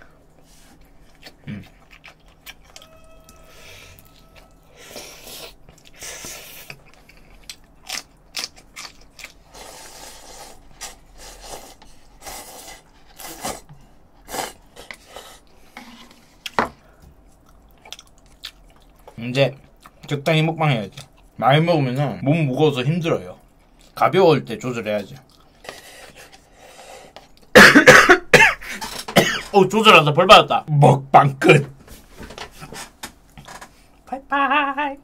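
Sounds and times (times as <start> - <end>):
chewing and slurping: 0.6 - 16.6.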